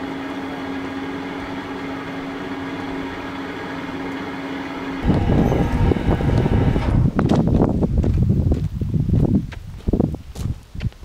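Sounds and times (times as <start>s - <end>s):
crane engine humming: 0.0s - 7.3s
uneven rumbling noise: 1.3s - 8.4s.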